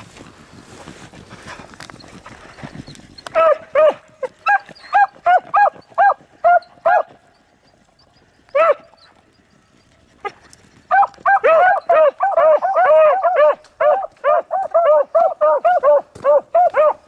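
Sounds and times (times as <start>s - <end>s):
wind noise on microphone: 0.0s - 4.7s
dog barking: 3.3s - 7.1s, 8.5s - 8.9s, 10.9s - 17.0s.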